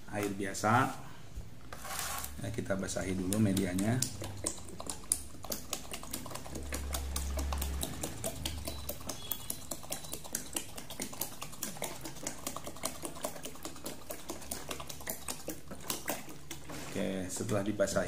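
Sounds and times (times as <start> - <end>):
rapid irregular clicking: 3.2 - 16.8
water pouring from plastic bottle: 3.3 - 17.7.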